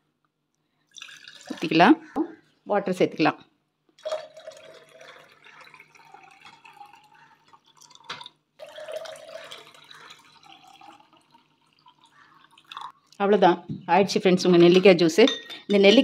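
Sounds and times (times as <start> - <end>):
water pouring into glass: 0.9 - 1.8, 4.0 - 13.2.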